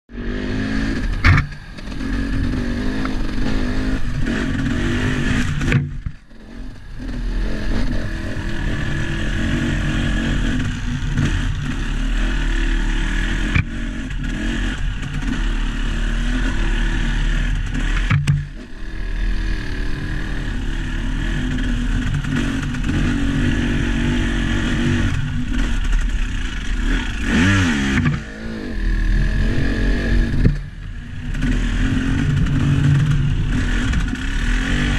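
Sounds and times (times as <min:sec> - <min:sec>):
vehicle engine running: 0:00.1 - 0:34.9.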